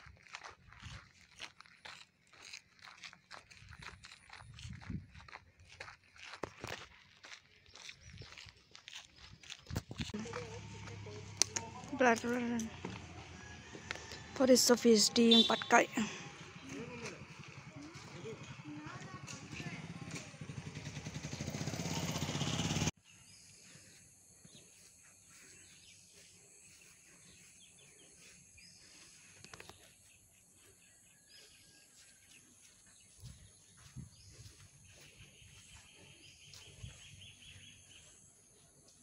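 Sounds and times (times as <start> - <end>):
vehicle engine running: 10.0 - 23.0.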